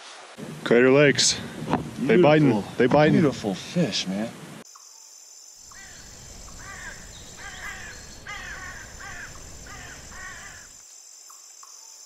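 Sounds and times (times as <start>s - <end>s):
high insect buzz: 4.6s - 12.0s
bird cawing: 5.7s - 10.8s.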